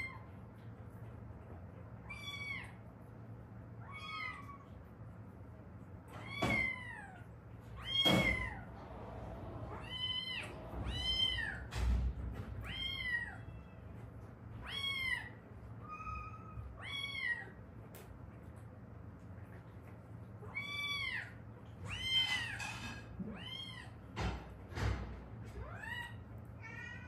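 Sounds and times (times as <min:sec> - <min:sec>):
cat meowing: 0:09.7 - 0:11.7, 0:12.6 - 0:14.0.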